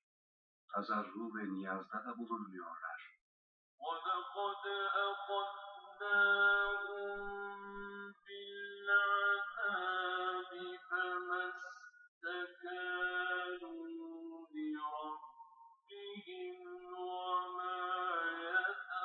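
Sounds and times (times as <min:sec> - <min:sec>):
voice chanting melodically: 0:03.8 - 0:19.0.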